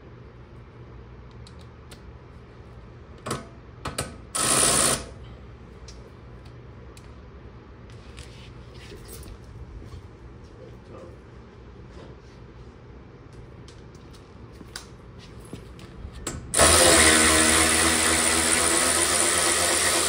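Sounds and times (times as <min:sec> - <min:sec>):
tool ratcheting: 0:16.6 - 0:20.0.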